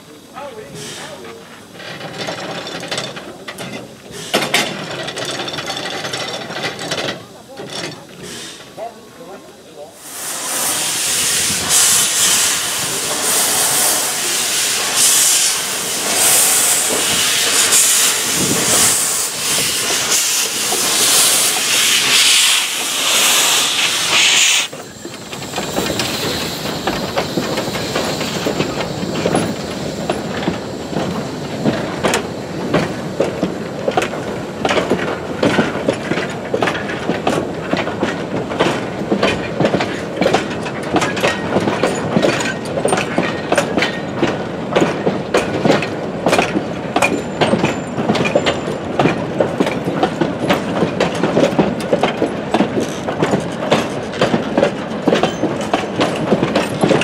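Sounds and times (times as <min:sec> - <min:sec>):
steam hissing: 0:00.0 - 0:02.9, 0:08.2 - 0:39.2
train wheels clicking over rail joints: 0:00.0 - 0:57.0.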